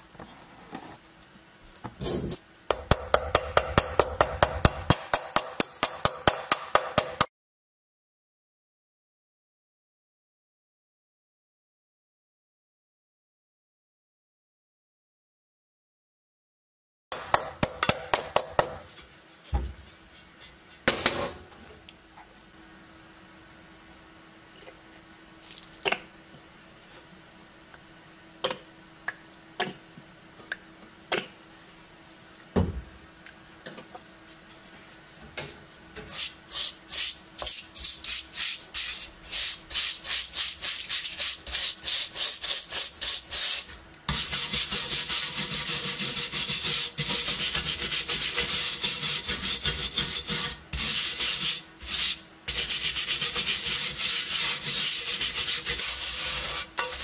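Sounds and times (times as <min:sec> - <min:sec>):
scouring pad scrubbing metal: 0:44.1 - 0:57.0.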